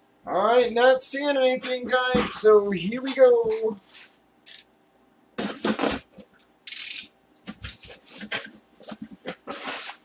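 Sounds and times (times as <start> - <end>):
cardboard box scraping and rustling: 7.7 - 10.0.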